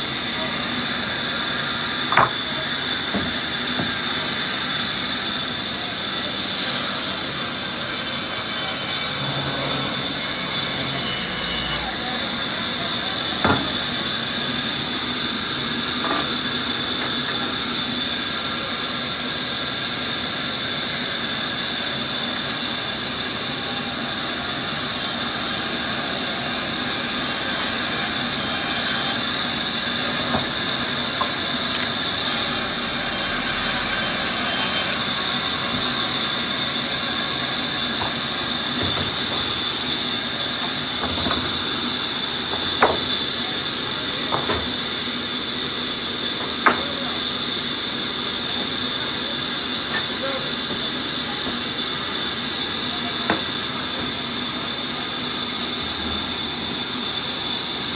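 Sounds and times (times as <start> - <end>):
wood knocks: 2.1 - 2.4, 3.1 - 3.9, 38.0 - 39.6, 42.5 - 43.2, 44.3 - 44.8, 46.4 - 46.9
band saw ripping wood: 30.2 - 45.1.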